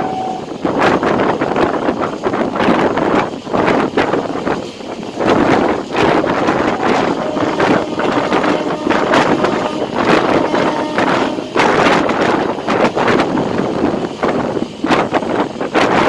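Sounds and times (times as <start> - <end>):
train coaches running on track: 0.0 - 16.0
wind buffeting microphone: 0.0 - 16.0.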